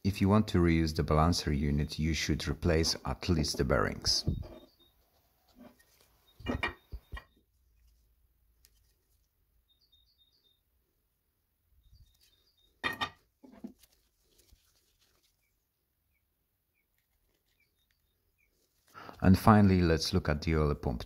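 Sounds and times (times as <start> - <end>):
faint bird chirps: 4.3 - 5.2, 6.2 - 7.5, 9.6 - 10.7, 11.7 - 12.8.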